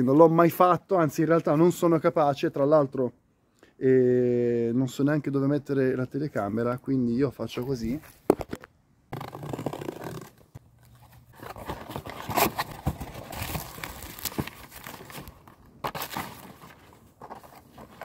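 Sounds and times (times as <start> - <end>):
cardboard box being cut open: 9.2 - 10.4, 11.3 - 15.3, 15.9 - 18.0
packaging tearing and crinkling: 9.2 - 18.0.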